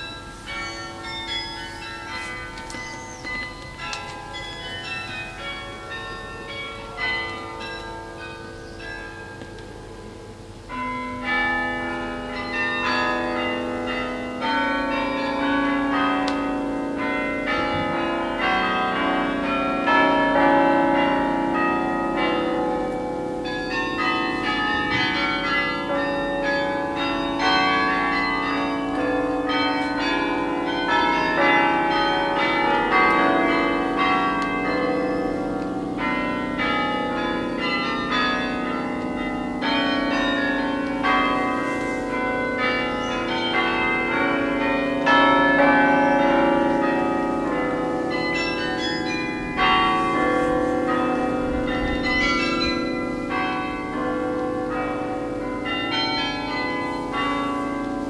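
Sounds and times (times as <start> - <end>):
carillon bells playing a hymn: 0.0 - 58.0.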